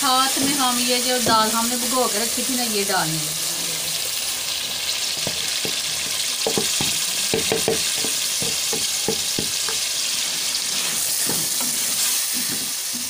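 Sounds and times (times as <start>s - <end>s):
lentils sizzling in hot oil: 0.0s - 13.0s
spoon knocking against pot: 6.4s - 9.8s
wooden spoon scraping pot: 7.6s - 13.0s.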